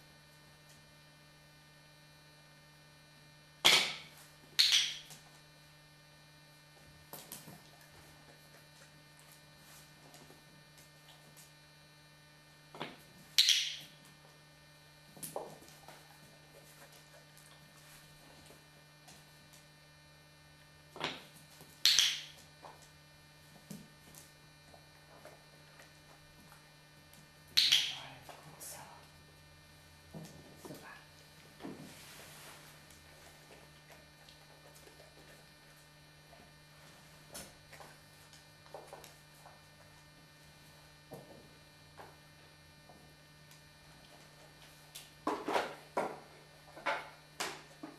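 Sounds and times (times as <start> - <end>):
electrical mains hum: 0.0 - 47.9.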